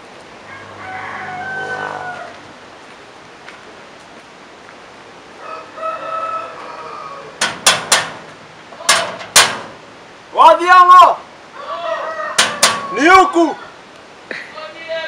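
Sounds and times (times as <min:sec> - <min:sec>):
rooster crowing: 0:00.4 - 0:02.6, 0:05.4 - 0:07.6, 0:11.5 - 0:13.8
sheet-metal gate banging: 0:07.4 - 0:10.0, 0:12.3 - 0:13.4.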